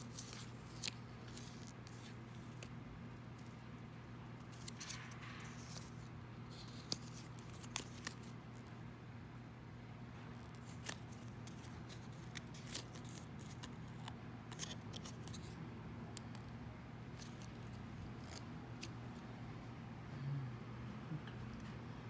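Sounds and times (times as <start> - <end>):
paper rustling: 0.0 - 2.7, 4.4 - 8.4, 10.4 - 15.6, 17.1 - 19.0
low steady hum: 0.0 - 22.0.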